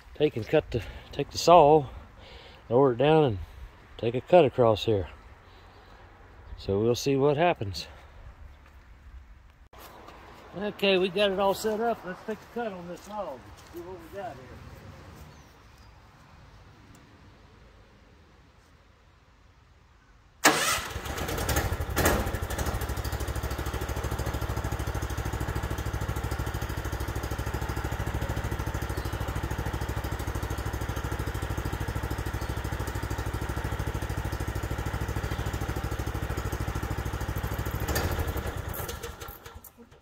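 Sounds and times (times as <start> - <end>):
gasoline engine running: 20.4 - 40.0.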